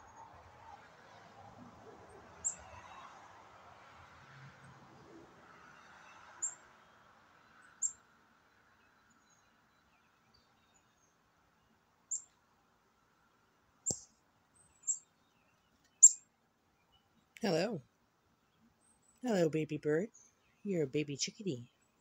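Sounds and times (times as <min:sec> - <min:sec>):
chickadee chirps: 0:16.0 - 0:16.2.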